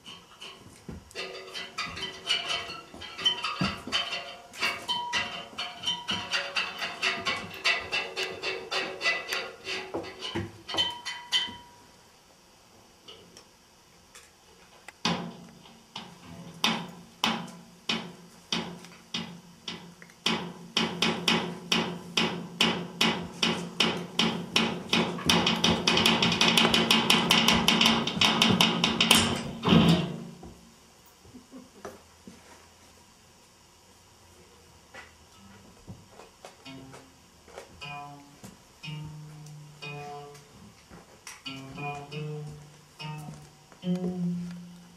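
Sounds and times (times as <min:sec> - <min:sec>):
sharp knocking: 0:20.3 - 0:30.2.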